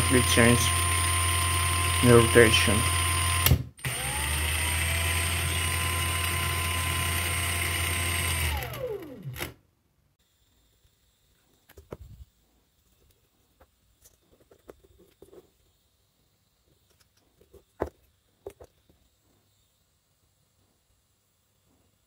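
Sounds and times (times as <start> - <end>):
angle grinder motor whine: 0.0 - 9.5.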